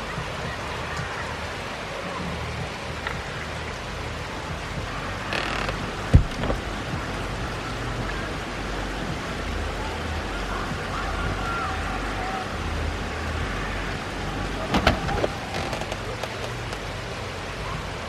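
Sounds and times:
rain on pavement and grass: 0.0 - 18.0
sharp loud thump: 14.7 - 15.4.

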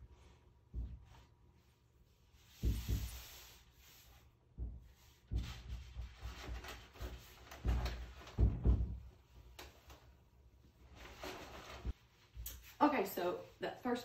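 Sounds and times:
door thumping in its frame: 7.5 - 9.1.

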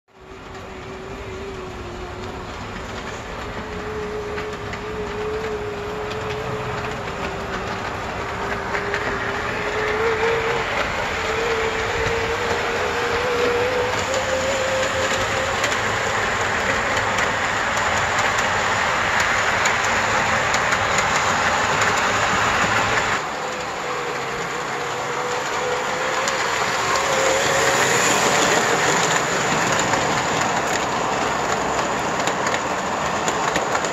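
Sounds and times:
metal wheels clattering on rails: 0.2 - 33.9
model train motor whine: 0.2 - 33.9.

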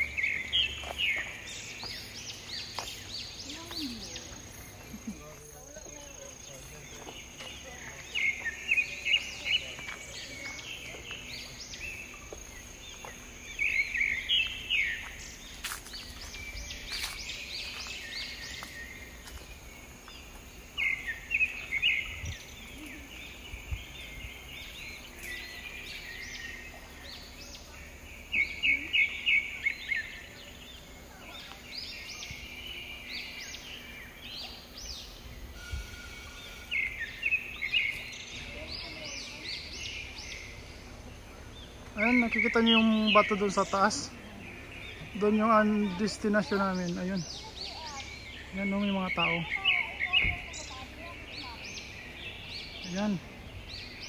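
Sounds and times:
birds singing: 0.0 - 54.0
faint high whine: 11.1 - 46.8.

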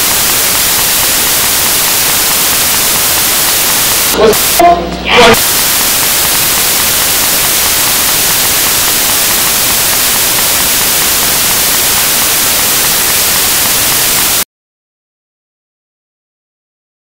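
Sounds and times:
white-noise static: 0.0 - 14.5.

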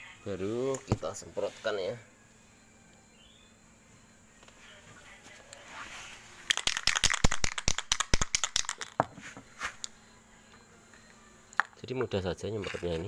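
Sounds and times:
spray can rattling when shaken: 6.5 - 9.0.

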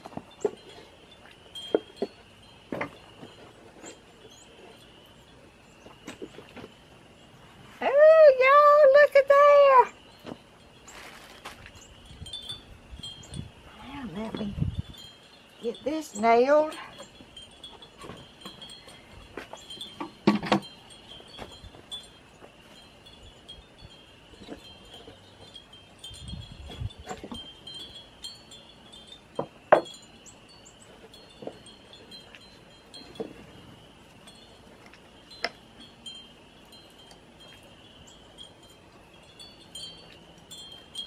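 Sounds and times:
wind chimes tinkling: 0.0 - 6.3, 7.9 - 41.0.

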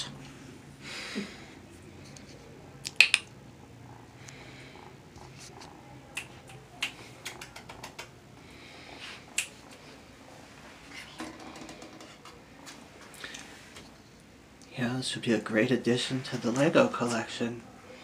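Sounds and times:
sharp clicks and taps: 2.8 - 3.3, 6.1 - 8.2.

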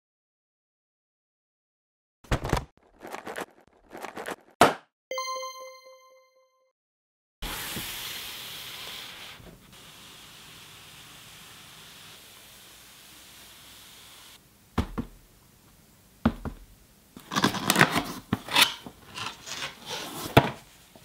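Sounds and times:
bright bell-like ding: 5.1 - 6.6
room tone hiss: 7.5 - 17.2.

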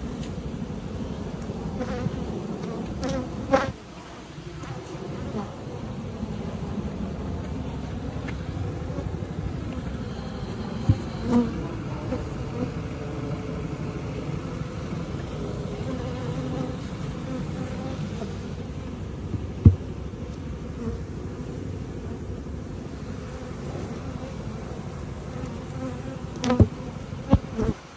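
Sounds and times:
bees humming: 0.0 - 27.9
short thumps: 19.3 - 19.9.

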